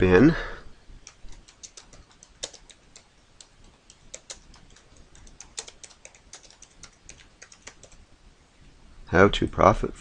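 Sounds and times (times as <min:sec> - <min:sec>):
computer keyboard typing: 0:01.0 - 0:08.0.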